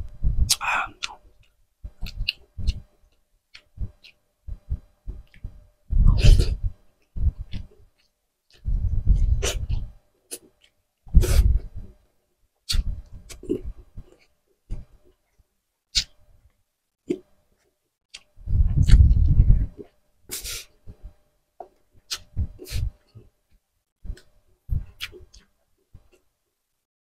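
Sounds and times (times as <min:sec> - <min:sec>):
wet chewing and lip smacks: 0:00.5 - 0:04.2, 0:07.4 - 0:10.8, 0:18.1 - 0:20.0, 0:21.7 - 0:23.3, 0:24.1 - 0:26.2.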